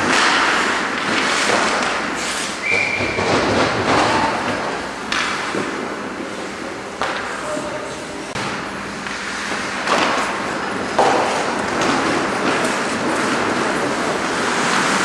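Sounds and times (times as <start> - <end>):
skates scraping ice: 0.0 - 4.7, 9.0 - 15.0
sticks and puck clacking: 0.0 - 6.0, 7.0 - 15.0.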